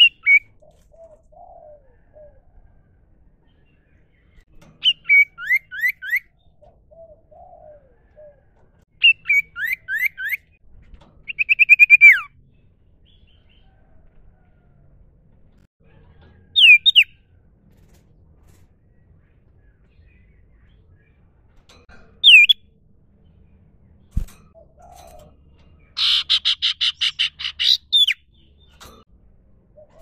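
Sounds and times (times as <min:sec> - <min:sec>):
bird trill: 0:00.0 - 0:02.3, 0:04.6 - 0:10.6, 0:11.2 - 0:12.4, 0:16.4 - 0:17.2, 0:22.2 - 0:22.7, 0:24.5 - 0:29.0
bird singing: 0:03.4 - 0:10.6, 0:16.4 - 0:17.2, 0:22.2 - 0:29.0.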